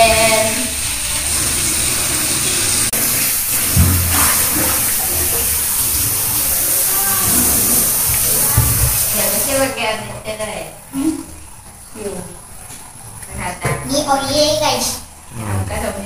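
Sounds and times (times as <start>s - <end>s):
low thump: 3.7s - 4.7s.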